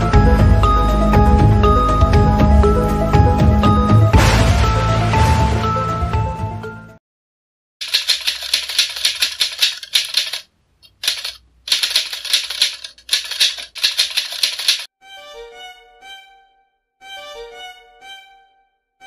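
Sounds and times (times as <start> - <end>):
soft music: 0.0 - 7.0, 14.9 - 19.0
typewriter key clatter: 7.8 - 14.9.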